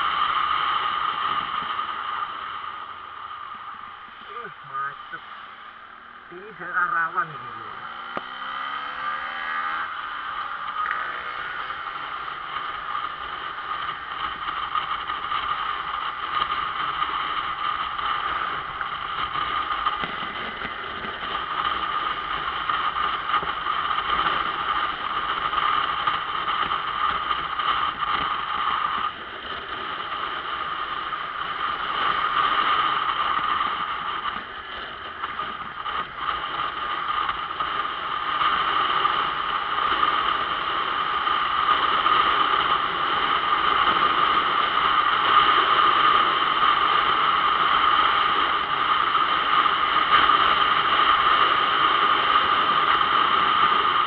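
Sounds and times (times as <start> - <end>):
wind and road noise: 0.0 - 54.0.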